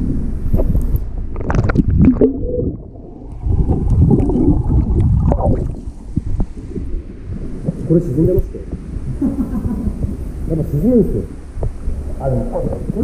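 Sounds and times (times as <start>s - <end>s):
muffled underwater gurgling: 0.0s - 13.0s
pool water splashing: 1.4s - 11.3s.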